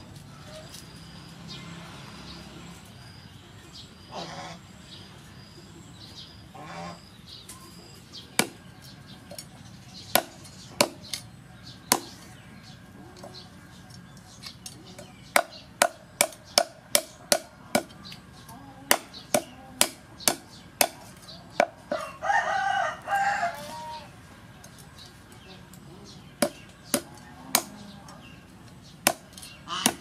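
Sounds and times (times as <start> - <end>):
bird calls: 0.0 - 30.0
cleaver chopping on wooden board: 15.3 - 18.0, 18.9 - 21.7, 29.0 - 30.0.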